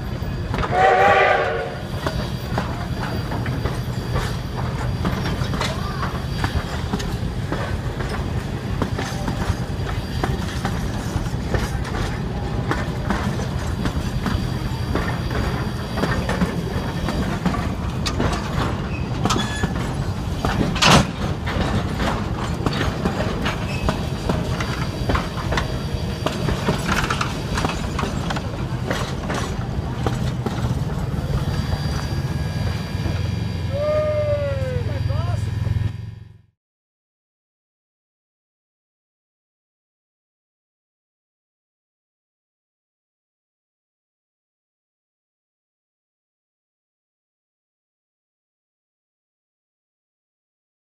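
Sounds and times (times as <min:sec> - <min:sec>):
train wheels squealing: 0:00.0 - 0:35.9
train cars rumbling past: 0:00.0 - 0:36.5
wheels clanking over rail joints: 0:01.8 - 0:33.8.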